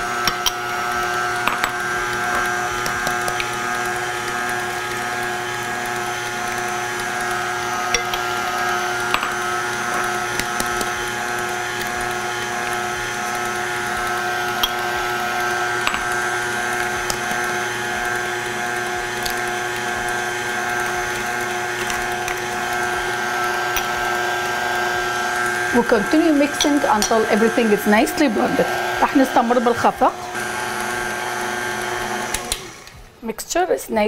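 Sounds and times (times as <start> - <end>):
mixer clicks: 0.0 - 33.0
electric mixer motor whine: 0.0 - 33.2.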